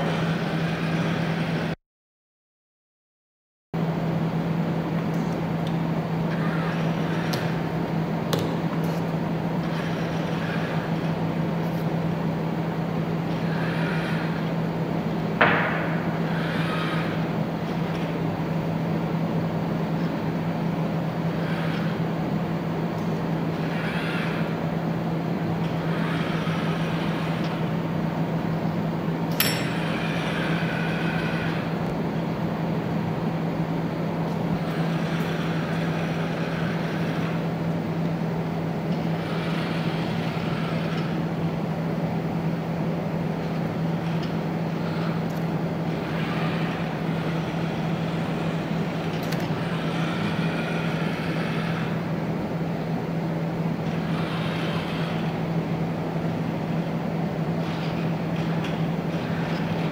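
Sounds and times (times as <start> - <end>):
mechanical hum and hiss: 0.0 - 1.8, 3.8 - 59.9
robot arm motors whining: 5.6 - 11.9, 12.9 - 14.7, 15.4 - 18.3, 20.8 - 22.4, 23.0 - 27.9, 28.6 - 32.0, 34.3 - 38.3, 38.9 - 41.5, 43.4 - 52.3, 53.8 - 55.6, 57.4 - 59.9.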